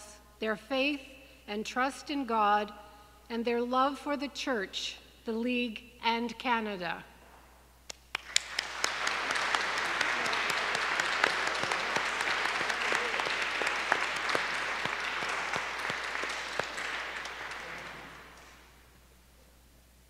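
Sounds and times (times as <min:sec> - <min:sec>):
people clapping: 0:07.9 - 0:18.9.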